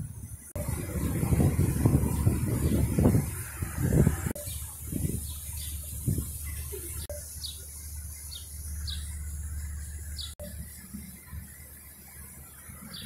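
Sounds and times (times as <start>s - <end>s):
low background hum: 4.3s - 13.0s
small bird chirping: 4.4s - 10.6s.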